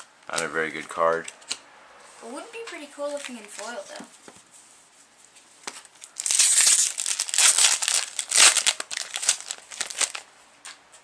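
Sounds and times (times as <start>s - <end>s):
foil wrapper crinkling and tearing: 5.8s - 10.3s.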